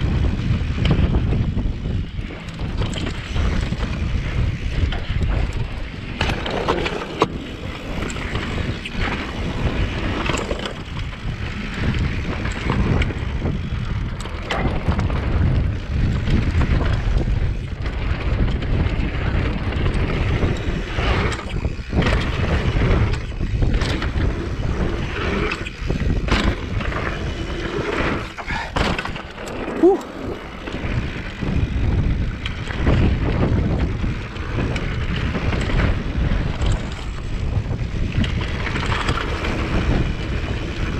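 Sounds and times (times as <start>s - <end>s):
bike rattling over bumps: 0.0s - 40.9s
bike tyres rumbling over dirt: 0.0s - 40.9s
wind buffeting microphone: 0.0s - 40.9s.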